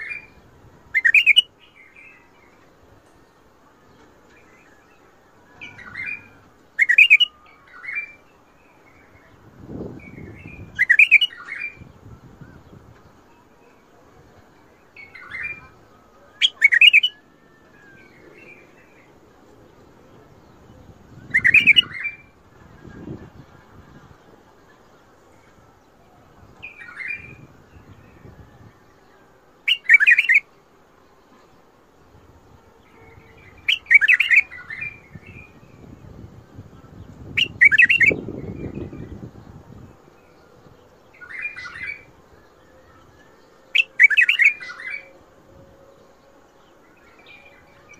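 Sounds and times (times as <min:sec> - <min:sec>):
bird singing whistled phrases: 0:00.0 - 0:02.3, 0:04.4 - 0:09.3, 0:10.0 - 0:11.8, 0:15.0 - 0:19.0, 0:21.2 - 0:22.3, 0:29.7 - 0:30.5, 0:33.0 - 0:35.8, 0:37.2 - 0:39.4, 0:41.2 - 0:45.2.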